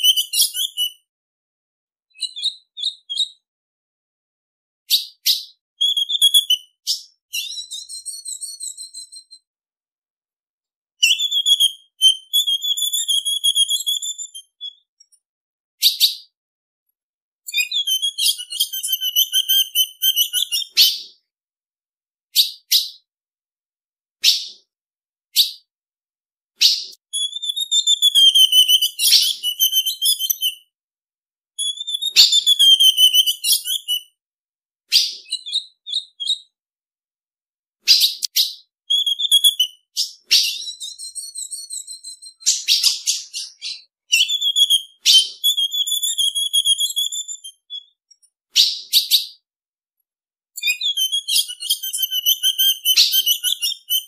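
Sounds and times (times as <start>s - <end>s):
bird sharp chips: 26.6s - 30.6s, 37.9s - 47.9s, 50.6s - 54.0s.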